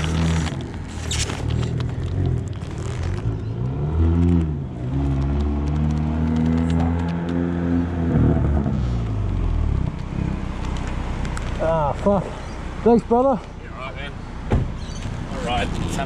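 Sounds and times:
knocks and scrapes: 0.0s - 3.4s.

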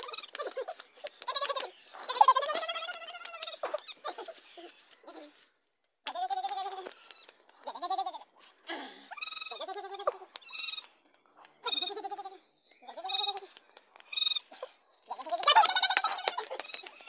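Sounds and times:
goat kids bleating: 0.0s - 5.4s, 7.6s - 8.3s, 11.6s - 13.5s, 14.2s - 17.0s.

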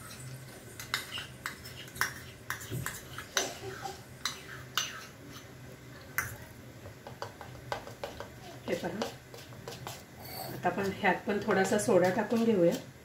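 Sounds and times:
metal spoon clinking on bowls: 0.0s - 3.5s.

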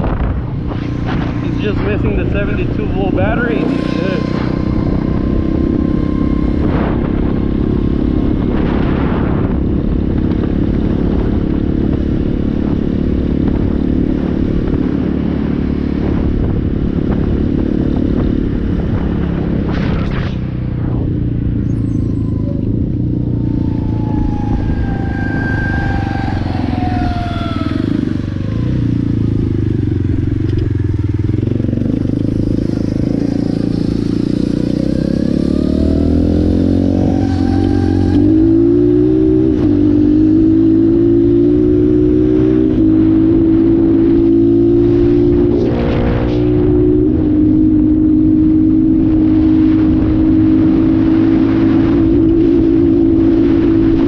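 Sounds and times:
dirt bike engine running: 0.0s - 40.9s.

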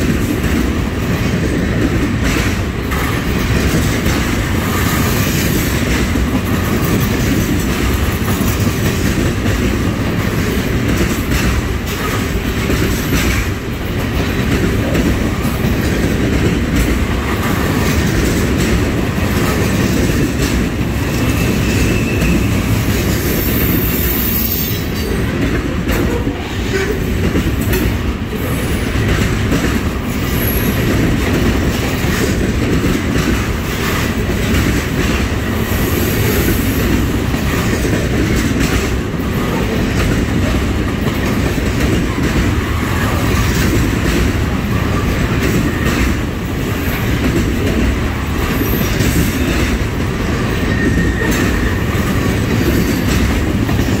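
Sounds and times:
freight train wheels rumbling: 0.0s - 54.0s
wheels knocking on rail joints: 0.0s - 54.0s
high wheel squeals: 21.3s - 24.9s.

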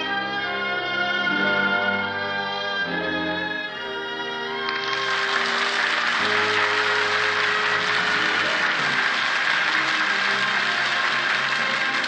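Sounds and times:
orchestral music: 0.0s - 12.0s
audience applauding: 4.6s - 12.0s.

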